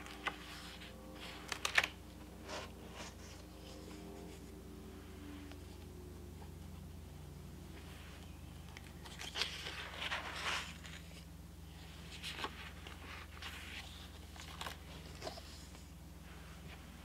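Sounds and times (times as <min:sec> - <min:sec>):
paper pages turning: 0:00.0 - 0:04.5, 0:07.8 - 0:15.9.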